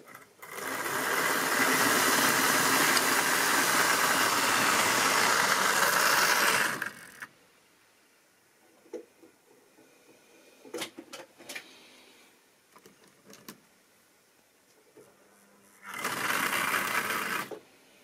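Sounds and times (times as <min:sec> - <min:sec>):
small electric motor buzzing: 0:00.4 - 0:07.3, 0:15.8 - 0:17.6.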